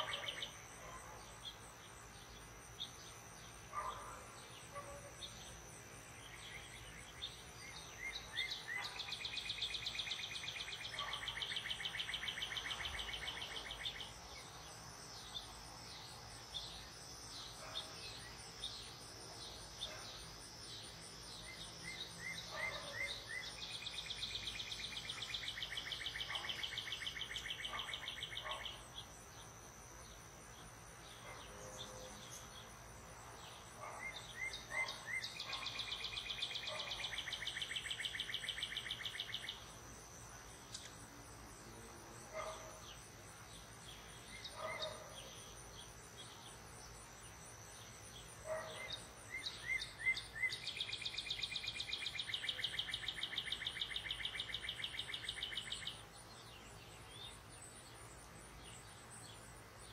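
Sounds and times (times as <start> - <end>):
bird singing with trill: 48.5 - 56.0.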